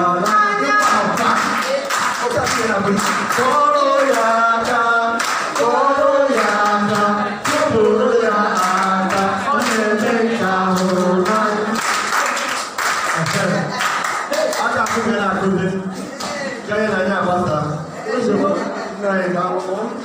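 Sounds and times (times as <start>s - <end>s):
woman and man singing together: 0.0s - 1.6s, 2.6s - 12.1s
hand claps: 0.2s - 5.7s, 6.3s - 7.8s, 8.5s - 9.9s, 10.7s - 15.1s.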